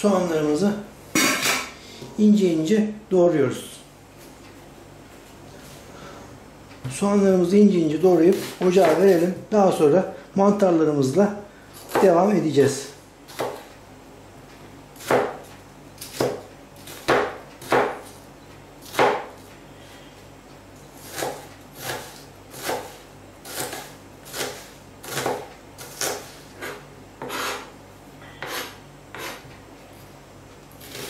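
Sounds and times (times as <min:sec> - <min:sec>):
knife chopping on cutting board: 0:08.3 - 0:09.3, 0:13.3 - 0:13.7, 0:15.0 - 0:18.1, 0:18.8 - 0:19.3, 0:21.0 - 0:27.7, 0:28.4 - 0:29.5, 0:30.8 - 0:31.0.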